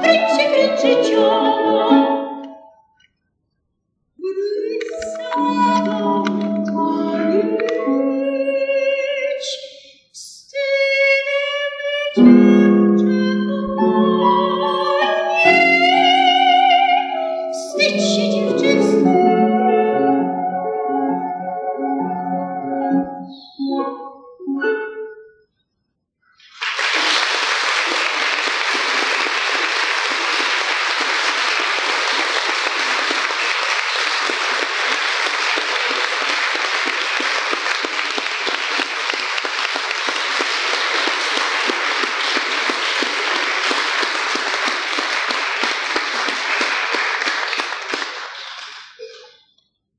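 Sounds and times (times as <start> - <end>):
voice and piano song: 0.0 - 2.6, 4.2 - 9.7, 10.6 - 24.9, 26.6 - 48.2
audience applauding: 26.4 - 49.0.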